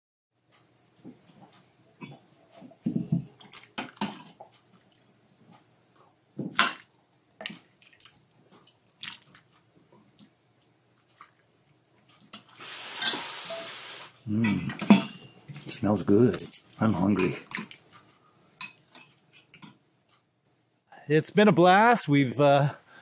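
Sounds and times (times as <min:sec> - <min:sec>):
soup splashing: 0:06.7 - 0:10.3, 0:11.0 - 0:11.8
ladle clinking against pot: 0:14.5 - 0:15.4.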